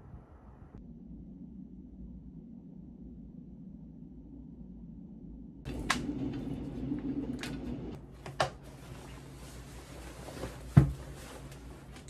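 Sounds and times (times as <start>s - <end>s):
bag handling noise: 7.5s - 12.0s.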